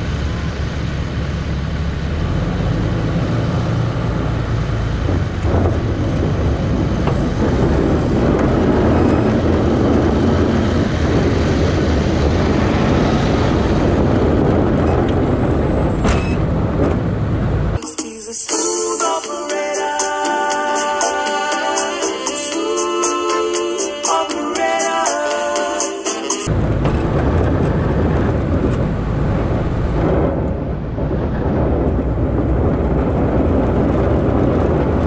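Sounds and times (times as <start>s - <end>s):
diesel truck engine running: 0.0s - 17.8s, 26.4s - 35.0s
rush of noise: 0.0s - 35.0s
music: 17.8s - 26.5s.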